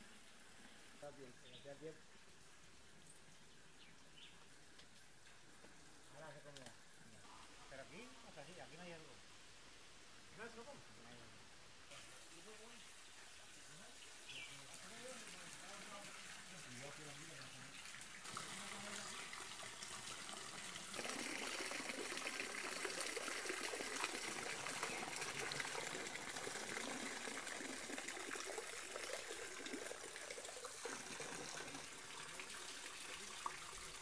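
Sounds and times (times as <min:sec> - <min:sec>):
rainwater running down metal gutter: 0:13.6 - 0:34.0.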